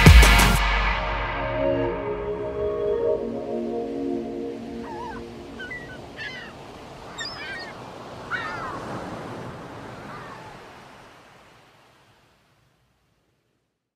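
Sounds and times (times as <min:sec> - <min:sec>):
surf washing: 0:03.5 - 0:13.4
birds calling: 0:04.8 - 0:10.8.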